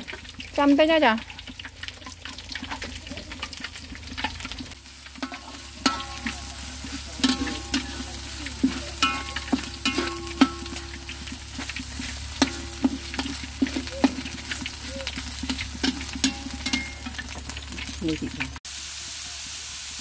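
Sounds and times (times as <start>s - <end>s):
food sizzling in a pan: 0.0s - 20.0s
metal spatula scraping a pan: 4.1s - 17.4s.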